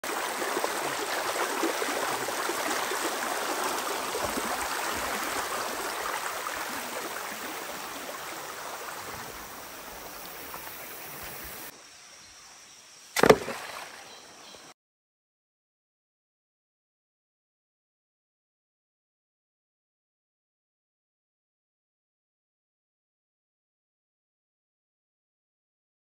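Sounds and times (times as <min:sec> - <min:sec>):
stream running over stones: 0:00.0 - 0:11.7, 0:13.2 - 0:14.7
sharp knock: 0:13.2 - 0:13.6.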